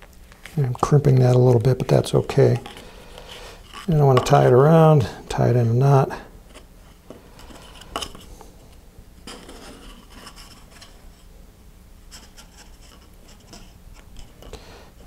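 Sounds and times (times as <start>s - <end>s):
fingers rubbing and rustling cord: 1.0s - 4.2s.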